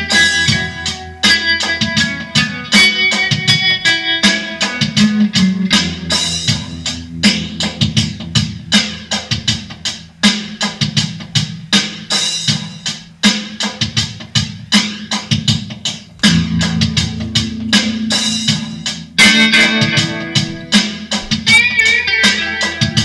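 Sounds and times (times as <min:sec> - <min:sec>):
electric guitar bluesy lines: 0:00.0 - 0:10.3, 0:16.2 - 0:23.0
drum beat: 0:05.0 - 0:22.1.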